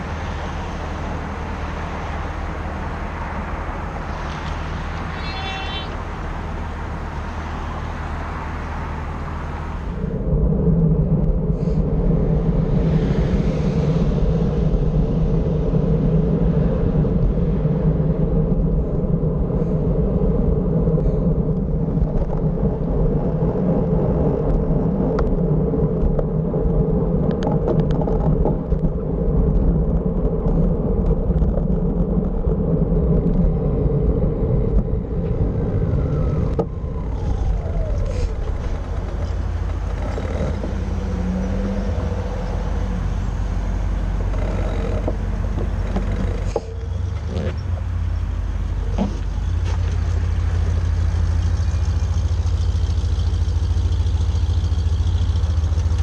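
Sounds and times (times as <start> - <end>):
wind and road noise: 0.0 - 56.0
bus idling rumble: 34.4 - 56.0.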